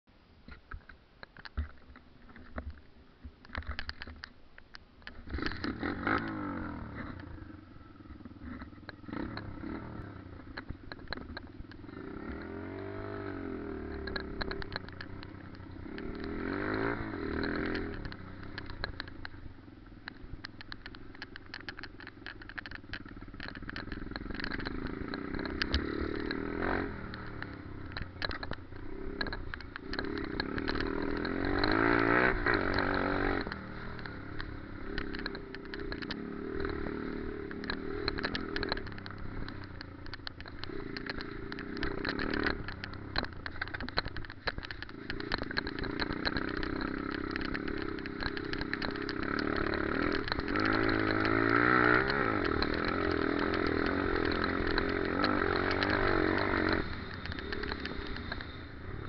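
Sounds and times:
bike rattling over rough ground: 0.4 - 59.0
motorbike engine revving: 5.2 - 59.0.

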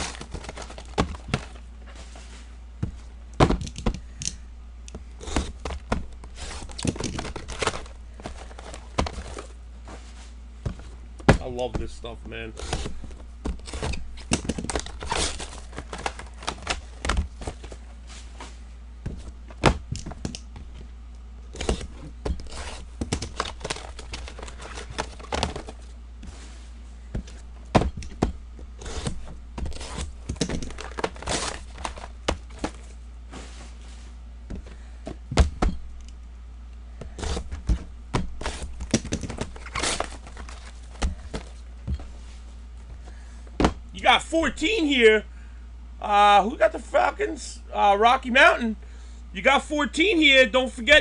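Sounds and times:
cards and boxes tapping: 0.0 - 1.6, 2.8 - 9.5, 12.6 - 17.8, 21.5 - 25.8, 27.2 - 32.9, 37.0 - 42.2
wrappers crinkling and tearing: 0.0 - 1.6, 13.6 - 17.7, 21.6 - 25.8, 28.8 - 32.8, 38.4 - 40.9.

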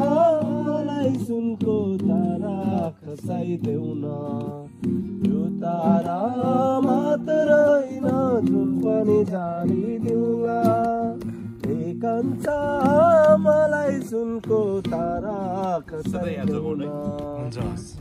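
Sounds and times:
strummed acoustic guitar: 0.0 - 18.0.

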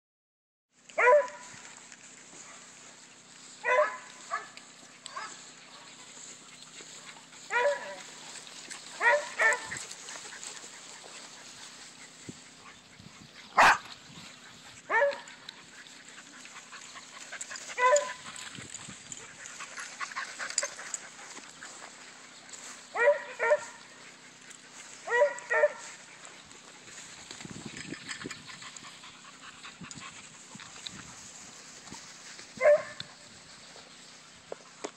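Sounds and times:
small dog barking: 1.0 - 1.5, 3.6 - 4.5, 7.5 - 8.1, 9.0 - 9.8, 13.6 - 13.9, 14.9 - 15.3, 17.8 - 18.2, 23.0 - 23.8, 25.1 - 25.9, 32.6 - 33.0.

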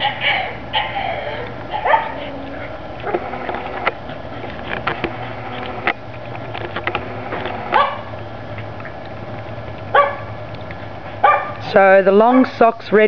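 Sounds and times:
dogs barking: 0.0 - 5.8, 7.6 - 8.7, 9.9 - 10.4, 11.1 - 11.6.

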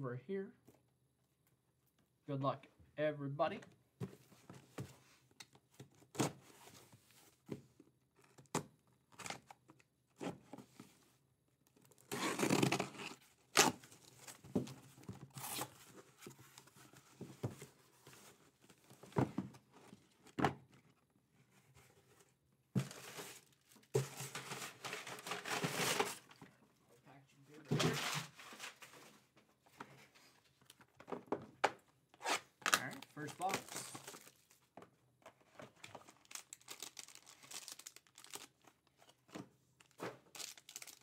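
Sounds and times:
tape and cardboard tearing: 12.0 - 13.9, 15.2 - 15.8, 32.1 - 34.3
cardboard rustling: 12.1 - 26.5.

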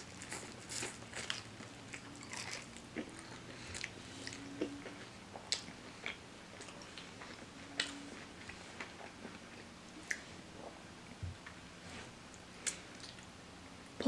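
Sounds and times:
chewing with crunches: 0.0 - 10.8.

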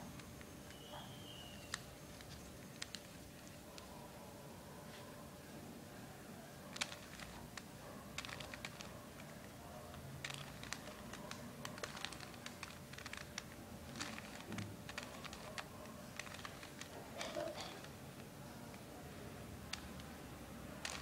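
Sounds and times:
puzzle cube clicking as turned: 1.5 - 3.6, 6.7 - 18.0, 20.8 - 21.0.

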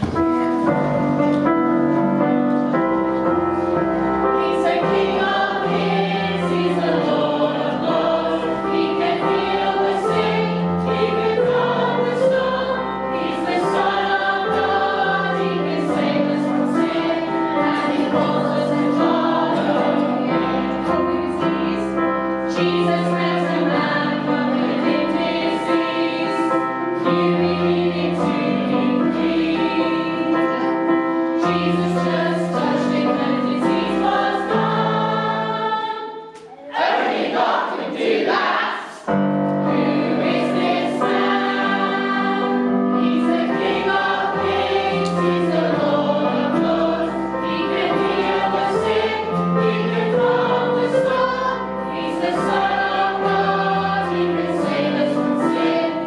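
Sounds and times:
group of voices singing: 4.2 - 56.0.

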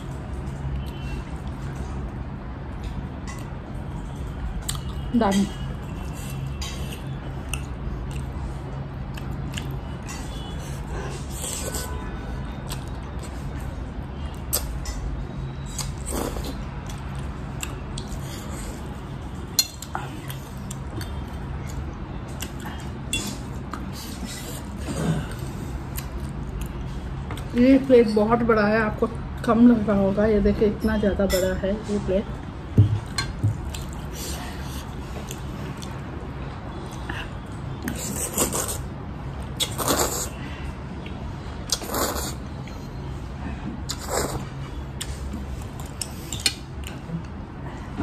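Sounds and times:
chewing: 5.9 - 11.9
noodle slurp: 39.6 - 40.4, 41.7 - 42.4.

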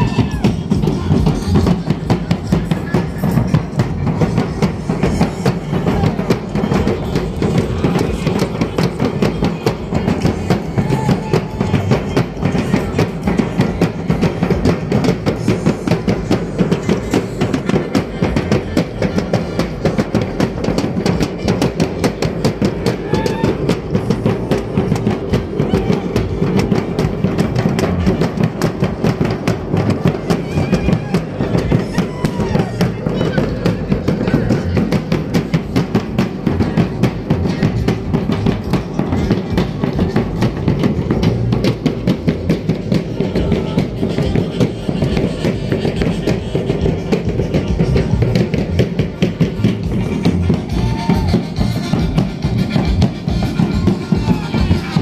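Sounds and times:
fast steady drum beat: 0.0 - 55.0.

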